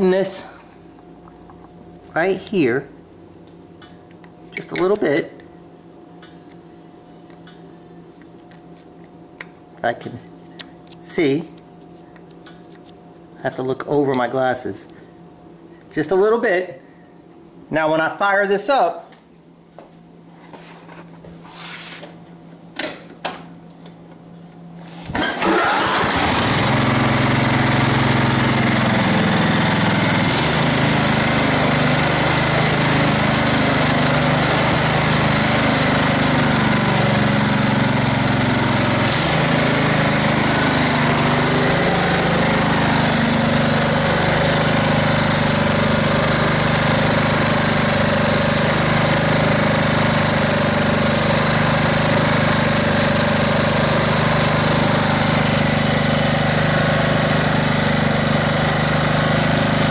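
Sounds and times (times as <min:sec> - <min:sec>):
riding mower engine running: 0:24.8 - 0:59.9.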